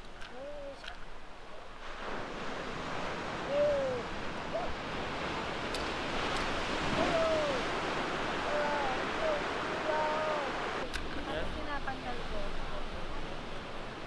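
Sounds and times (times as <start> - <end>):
surf washing onto beach: 0.0 - 14.0.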